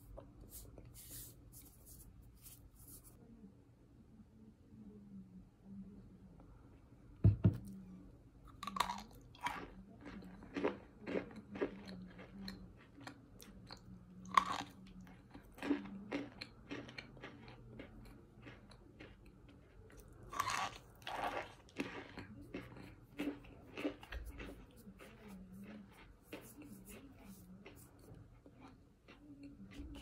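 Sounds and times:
crunchy chewing: 8.5 - 30.0.

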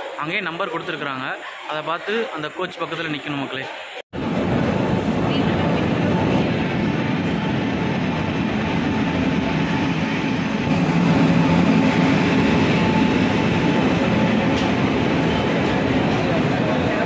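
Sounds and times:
train wheels rumbling on track: 4.2 - 17.0.

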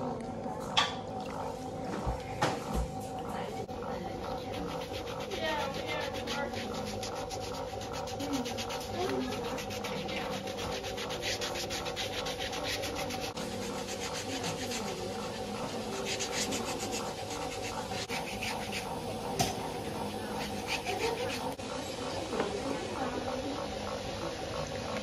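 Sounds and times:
foot scrubber rasping on skin: 3.8 - 21.6.

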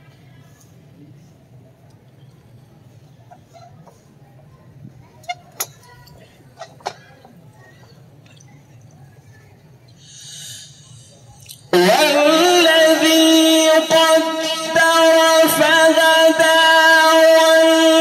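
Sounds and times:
hushed crowd murmur: 0.0 - 18.0
hiss: 10.0 - 11.3.

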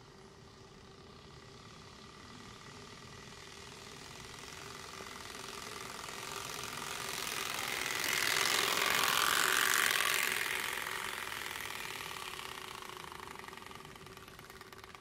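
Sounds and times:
card rattling against bicycle spokes: 4.5 - 15.0.

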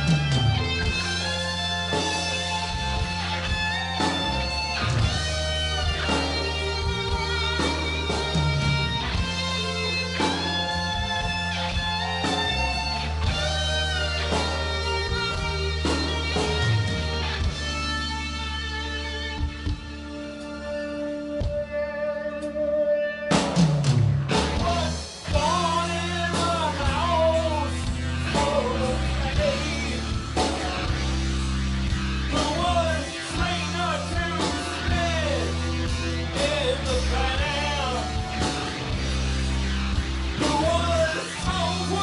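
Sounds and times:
live rock band playing: 0.0 - 42.0
person singing: 24.5 - 31.1, 32.3 - 35.6, 36.3 - 38.6, 40.4 - 42.0.

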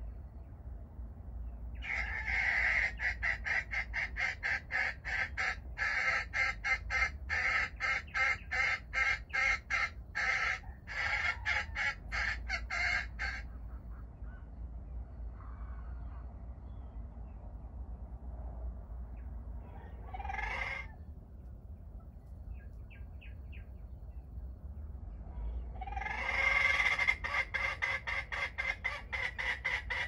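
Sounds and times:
jungle fowl clucking: 1.8 - 14.5, 19.6 - 21.0, 25.3 - 30.0.

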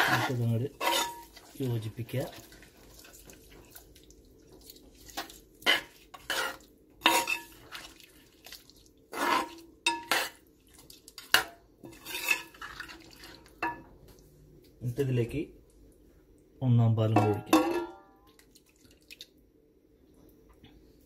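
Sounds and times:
metal ladle scraping metal pot: 0.0 - 1.4, 5.6 - 7.7, 9.1 - 10.4, 11.4 - 12.8.

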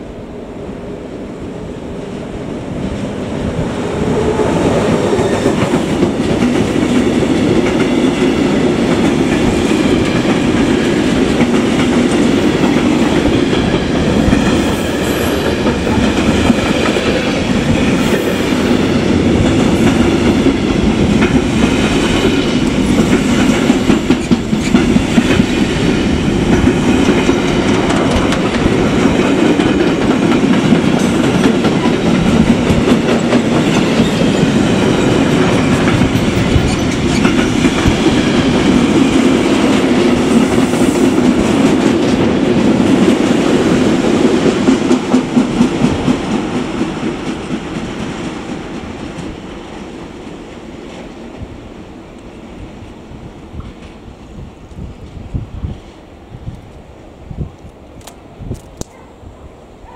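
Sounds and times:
freight train wheels rumbling: 0.0 - 59.0
train wheels clicking: 3.8 - 49.8.

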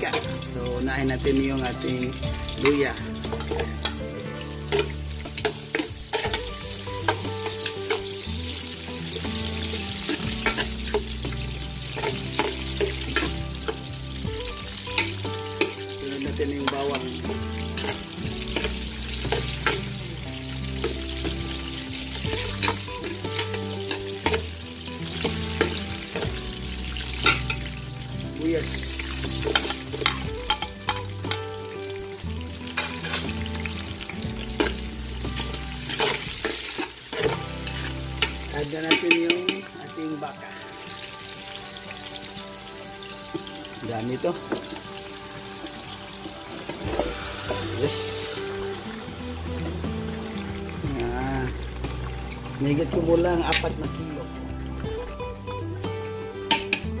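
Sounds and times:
aromatics sizzling in oil: 0.0 - 57.0
metal spoon scraping a pot: 9.7 - 13.9, 17.7 - 20.0, 35.4 - 39.4.

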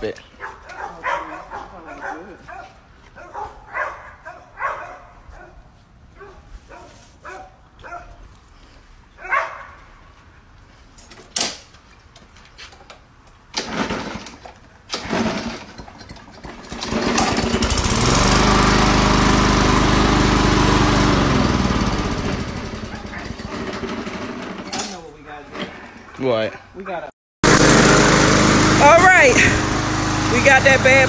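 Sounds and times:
lawn mower engine running: 13.5 - 24.9, 27.4 - 31.0.

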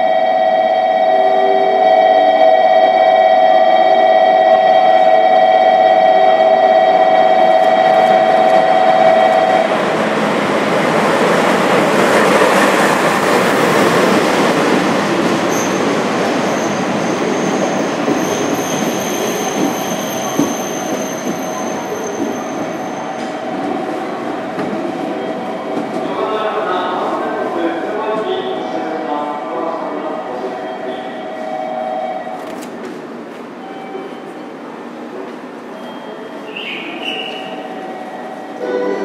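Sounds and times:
steady high tone: 0.0 - 10.0, 37.3 - 39.0
wheel and brake squeal: 16.4 - 23.3.

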